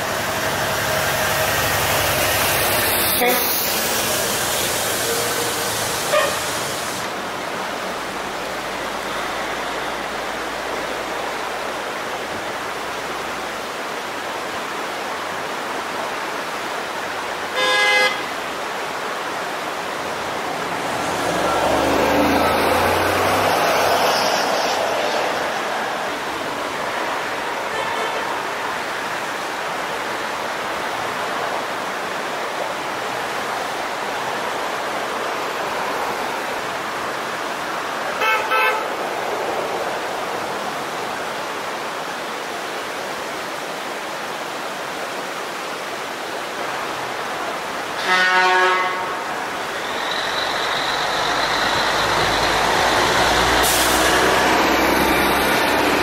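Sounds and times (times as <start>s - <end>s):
creek rushing: 0.0s - 56.0s
vehicle horns honking: 4.5s - 7.0s, 17.5s - 18.4s, 27.7s - 28.4s, 38.2s - 38.9s, 48.0s - 49.4s
heavy truck engine rumble: 49.3s - 56.0s.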